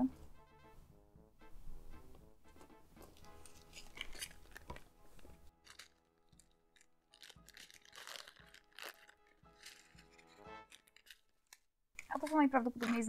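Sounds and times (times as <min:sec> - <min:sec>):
faint background music: 0:00.0 - 0:11.2, 0:12.0 - 0:13.0
plastic bag crinkling: 0:03.3 - 0:13.0.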